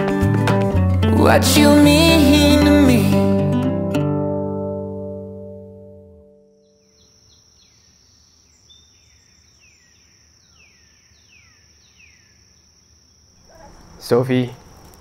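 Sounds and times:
music: 0:00.0 - 0:06.9
high-pitched insect trill: 0:06.8 - 0:15.0.

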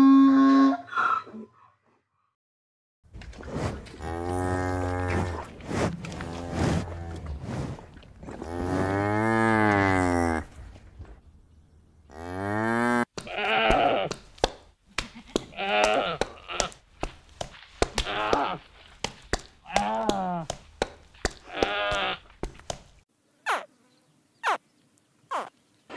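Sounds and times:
livestock bleating: 0:13.3 - 0:14.1.

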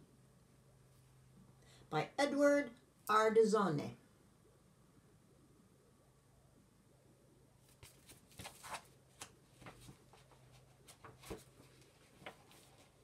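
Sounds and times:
faint room hum: 0:00.0 - 0:13.0
book pages rustling: 0:07.6 - 0:13.0.

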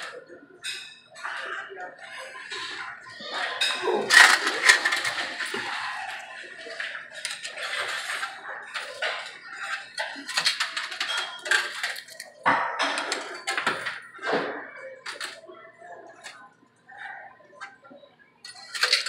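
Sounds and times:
coins clinking in a coin pusher: 0:04.1 - 0:05.8, 0:10.0 - 0:12.2, 0:18.5 - 0:19.0.

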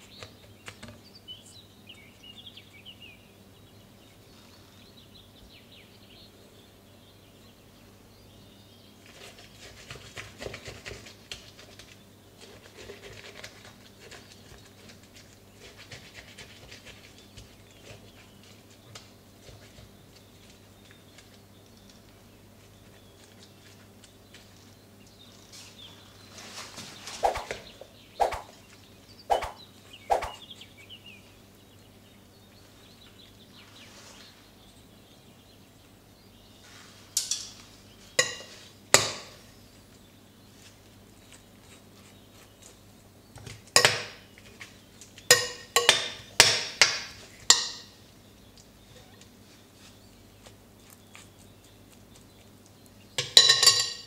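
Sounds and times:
dishes and utensils clinking: 0:38.2 - 0:38.7, 0:53.2 - 0:54.0.

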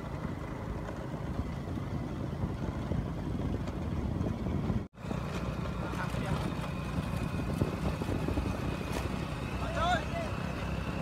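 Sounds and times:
motor scooter running: 0:00.0 - 0:11.0
tyres on road: 0:00.0 - 0:11.0
wind on microphone: 0:01.2 - 0:04.9, 0:06.9 - 0:09.8.

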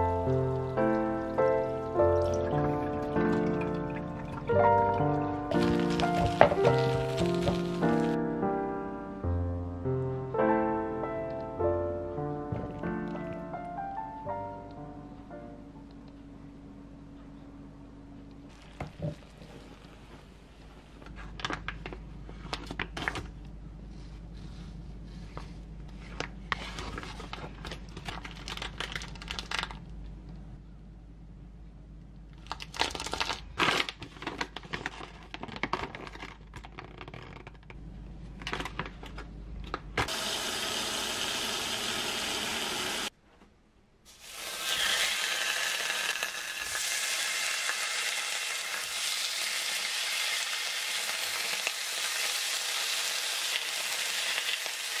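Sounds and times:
plastic packaging crinkling: 0:05.5 - 0:08.2, 0:26.6 - 0:29.9, 0:32.3 - 0:37.8
low hum: 0:12.2 - 0:32.6
meat sizzling on a griddle: 0:44.1 - 0:55.0.

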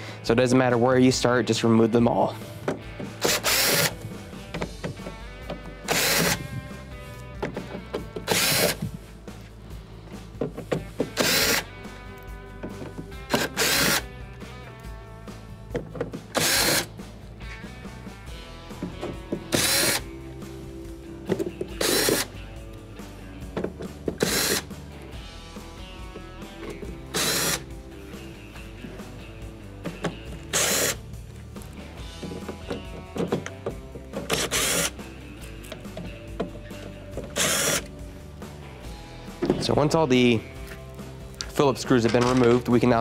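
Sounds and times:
cordless drill spinning screws: 0:03.2 - 0:04.1, 0:05.9 - 0:06.5, 0:08.2 - 0:08.9, 0:11.2 - 0:11.7, 0:13.3 - 0:14.1, 0:16.4 - 0:16.9, 0:19.5 - 0:20.1, 0:21.7 - 0:22.3, 0:24.2 - 0:24.7, 0:26.7 - 0:27.7, 0:30.4 - 0:31.0, 0:34.2 - 0:35.0, 0:37.3 - 0:37.9.

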